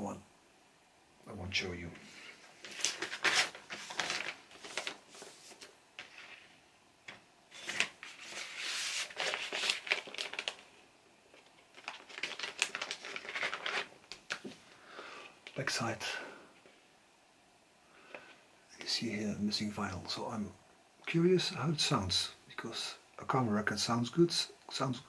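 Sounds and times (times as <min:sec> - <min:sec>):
paper sleeve rustling and scraping: 0:02.1 - 0:06.6, 0:07.5 - 0:10.6, 0:11.7 - 0:14.0.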